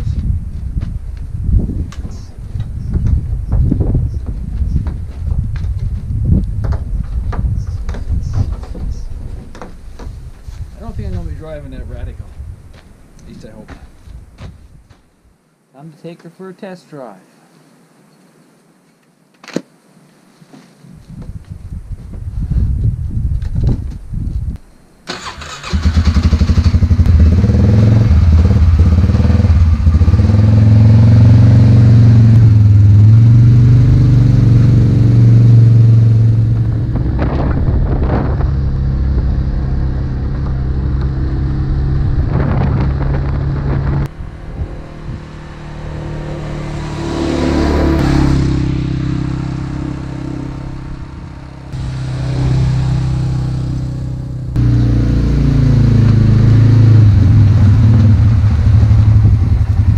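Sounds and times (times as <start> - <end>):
quad bike engine running: 26.0 - 49.8, 51.8 - 59.9.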